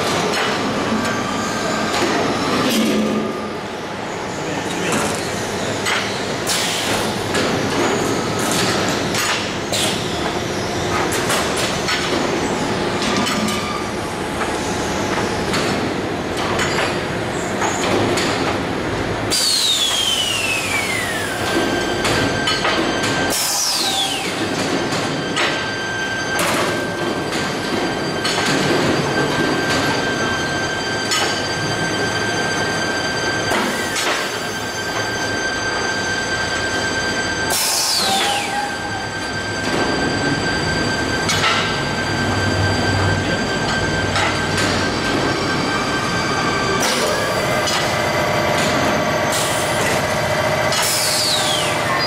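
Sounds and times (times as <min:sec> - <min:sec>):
steady machine noise: 0:00.0 - 0:52.0
falling whistling glides: 0:19.4 - 0:22.0, 0:50.9 - 0:52.0.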